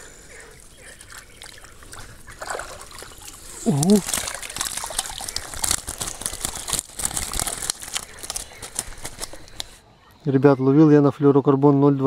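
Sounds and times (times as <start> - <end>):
wet net rustling through reeds: 0.8 - 9.8.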